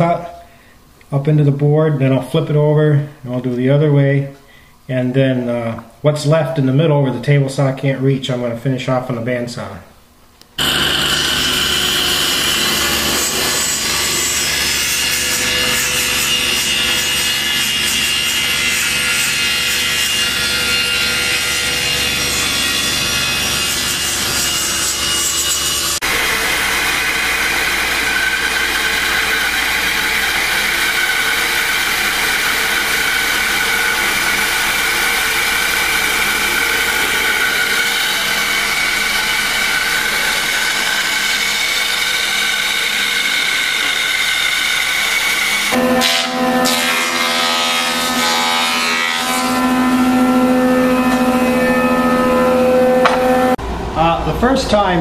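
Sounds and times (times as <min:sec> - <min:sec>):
bandsaw cutting wood: 0:10.6 - 0:53.6
table saw ripping wood: 0:10.6 - 0:53.6.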